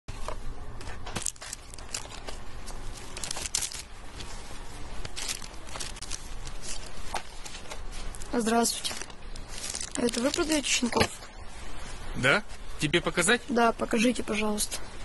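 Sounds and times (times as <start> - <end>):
packaging crinkling and rustling: 0.2 - 11.2.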